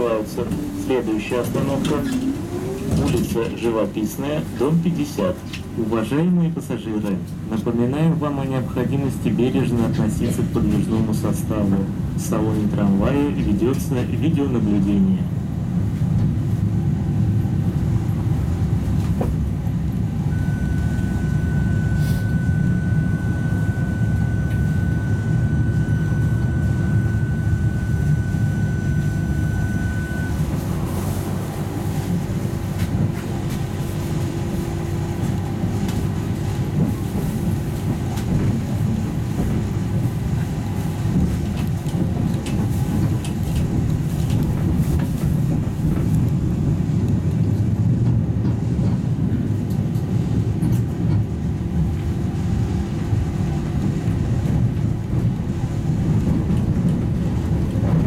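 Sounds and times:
tram wheels rumbling on rails: 0.0 - 58.0
thin high whine: 20.3 - 32.1.

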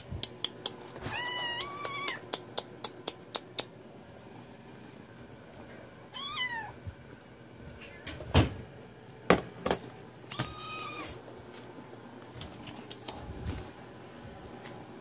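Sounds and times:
cats meowing: 1.0 - 2.3, 6.1 - 6.9, 10.3 - 11.2.

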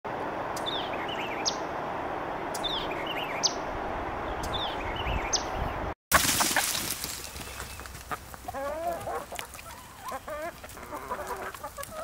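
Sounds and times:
small songbird chirping: 0.5 - 1.7, 2.4 - 3.6, 4.2 - 5.8.

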